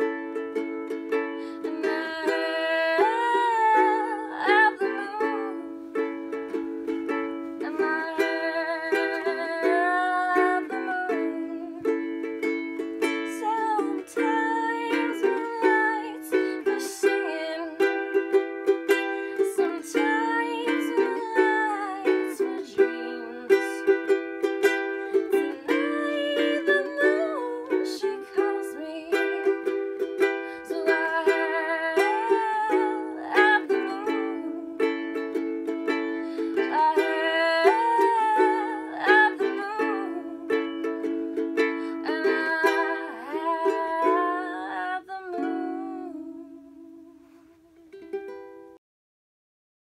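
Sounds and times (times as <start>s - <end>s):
woman singing: 0.0s - 48.2s
ukulele strumming: 0.0s - 48.8s.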